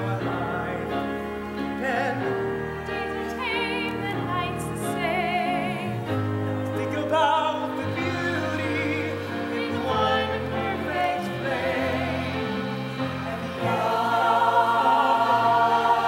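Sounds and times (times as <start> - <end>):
instrumental accompaniment: 0.0 - 16.0
singers holding notes with vibrato: 7.3 - 16.0.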